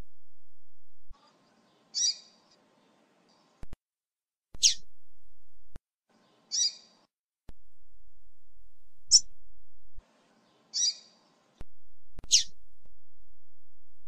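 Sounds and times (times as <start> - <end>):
bird chirping: 1.2 - 3.6, 4.6 - 4.8, 6.2 - 7.0, 10.3 - 11.4, 12.2 - 12.6.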